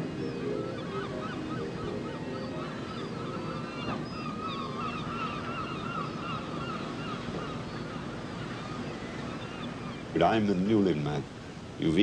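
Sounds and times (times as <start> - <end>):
background noise wash: 0.0 - 12.0
gulls calling: 0.0 - 12.0.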